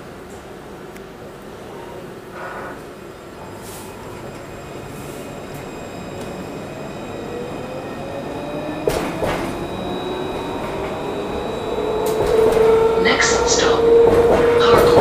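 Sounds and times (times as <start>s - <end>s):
tram ride rumble: 0.0s - 15.0s
electric drive whine: 4.2s - 13.8s.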